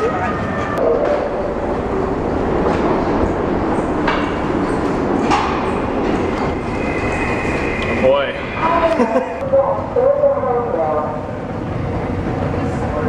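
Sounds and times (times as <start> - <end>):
subway train rumbling: 0.0 - 13.0
high steady squeal: 5.6 - 9.4.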